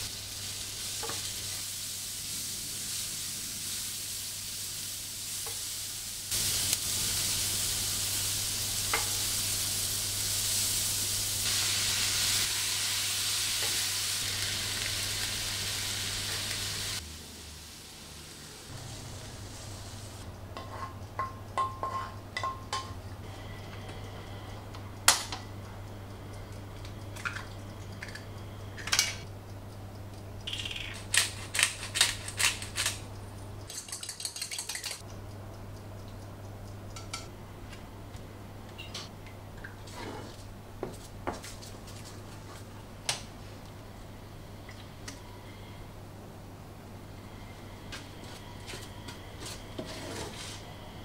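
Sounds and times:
utensils knocking on cookware: 20.6s - 23.0s
pepper grinder clicking: 30.5s - 33.0s.

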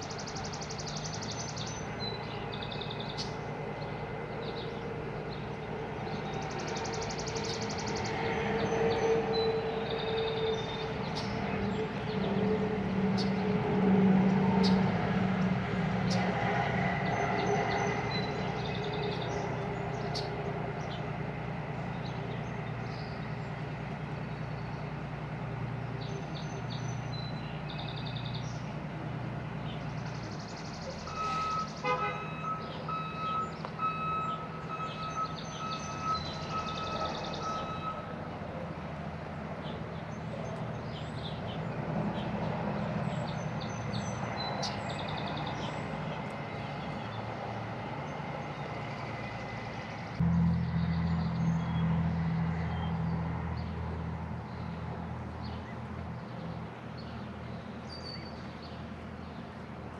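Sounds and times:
reversing beeper beeps: 31.1s - 31.7s, 32.3s - 38.1s
vehicle engine running: 45.6s - 57.5s.

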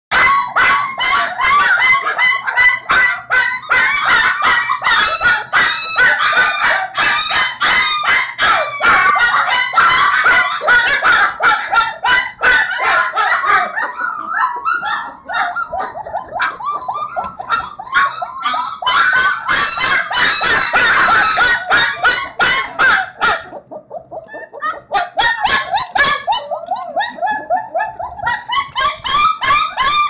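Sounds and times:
puppies yelping and crying: 0.1s - 30.0s.

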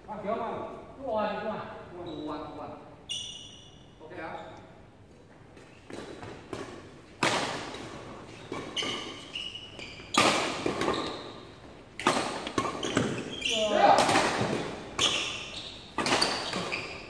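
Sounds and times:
rackets hitting shuttlecock: 5.6s - 9.4s, 10.0s - 11.2s, 11.9s - 17.0s.

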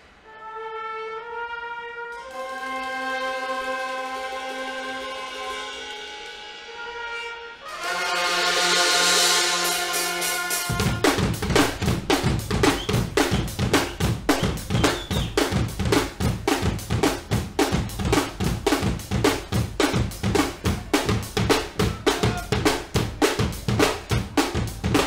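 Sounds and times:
cymbals: 0.0s - 25.0s
snare drum: 2.3s - 25.0s
bass drum: 10.6s - 25.0s.

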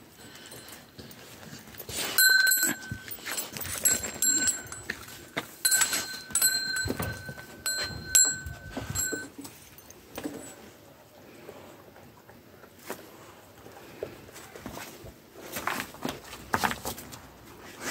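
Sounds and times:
chain rattling: 0.0s - 10.5s
dog collar bell ringing: 1.9s - 10.6s.

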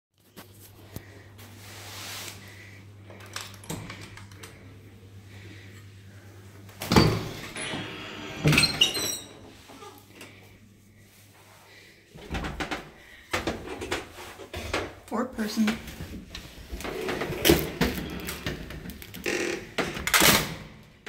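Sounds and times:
door hardware squeaks: 6.9s - 9.9s.

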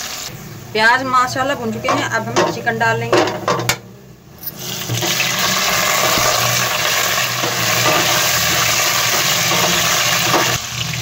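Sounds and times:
chicken sizzling in hot oil: 0.0s - 0.3s, 4.5s - 11.0s.

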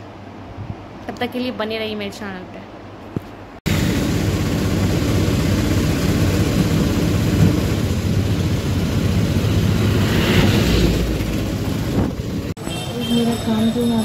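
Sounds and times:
traffic: 0.0s - 14.0s
wind: 0.0s - 14.0s
bus passing: 3.7s - 14.0s
rickshaw road noise: 3.7s - 14.0s.

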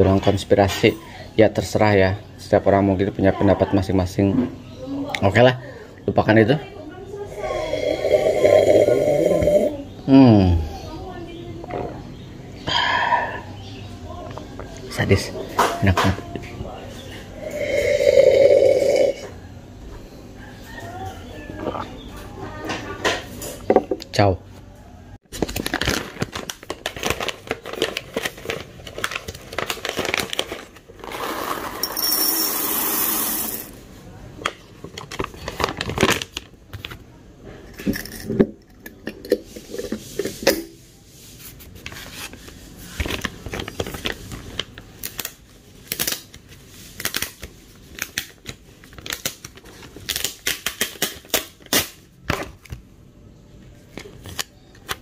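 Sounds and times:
coffee beans clattering in glass jar: 17.5s - 19.2s, 31.0s - 33.7s.

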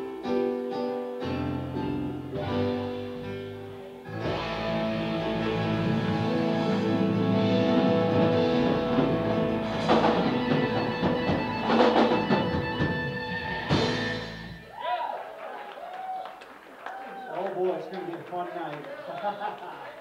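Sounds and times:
blues-rock band playing: 0.0s - 14.7s
drum fills: 4.2s - 14.6s.

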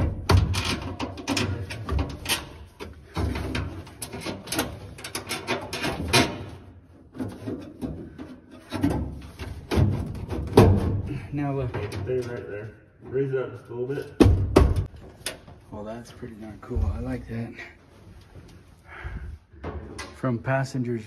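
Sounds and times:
plastic knocking and scraping metal: 0.0s - 12.4s.

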